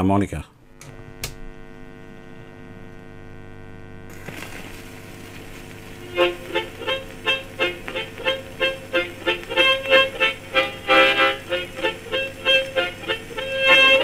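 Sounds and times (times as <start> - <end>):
record surface hiss: 0.0 - 14.0
steady hum: 0.3 - 14.0
harmonica tune: 6.0 - 14.0.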